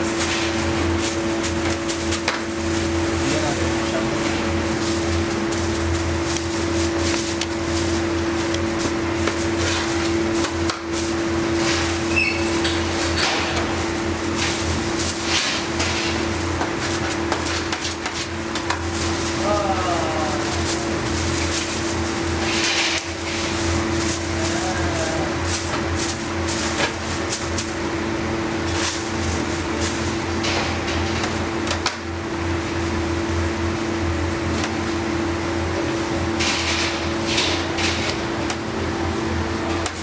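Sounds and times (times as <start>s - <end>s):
plastic film rustling: 0.0s - 30.5s
bakery machinery hum: 0.0s - 40.0s.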